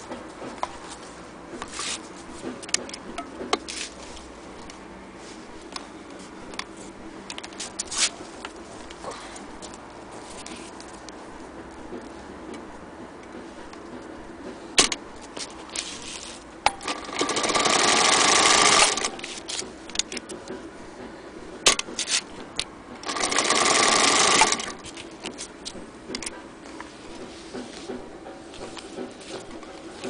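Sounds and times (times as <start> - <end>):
sewing machine stitching: 16.8 - 19.5, 23.0 - 25.0.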